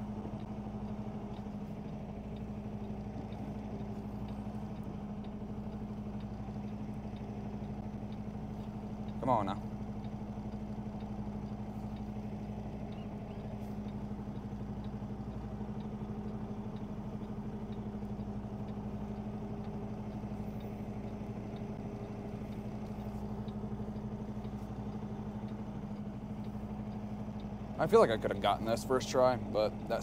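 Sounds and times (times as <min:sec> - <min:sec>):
truck diesel engine idling: 0:00.0 - 0:30.0.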